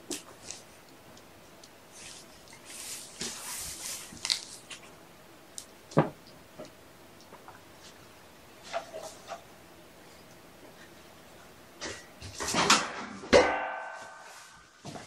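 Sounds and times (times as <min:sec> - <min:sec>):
kittens rustling and scuffling: 0:00.0 - 0:05.0, 0:06.6 - 0:09.5
sharp knock: 0:13.3 - 0:14.3.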